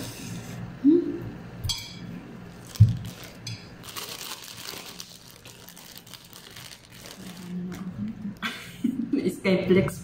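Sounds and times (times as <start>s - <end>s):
bread rustling and crinkling: 2.5s - 7.9s.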